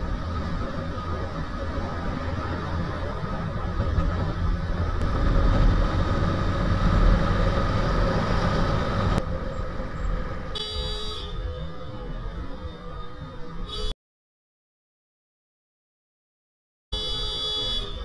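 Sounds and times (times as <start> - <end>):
motorcycle engine: 0.0 - 10.4.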